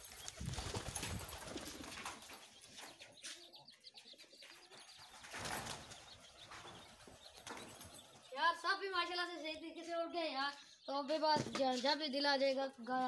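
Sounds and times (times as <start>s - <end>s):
pigeon wings flapping: 0.0s - 2.4s, 5.2s - 8.0s.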